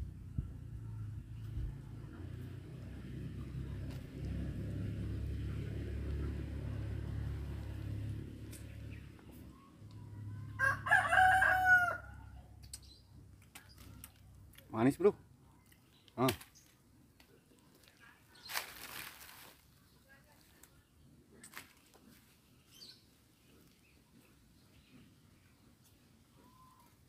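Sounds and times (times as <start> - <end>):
low steady rumble: 0.0 - 10.9
rooster crowing: 10.5 - 12.3.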